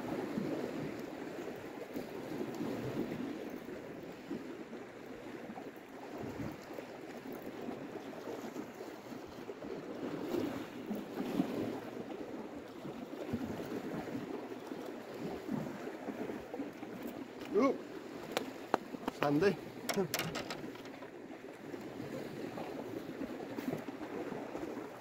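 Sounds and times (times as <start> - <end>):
waves washing against rocks: 17.1 - 25.0.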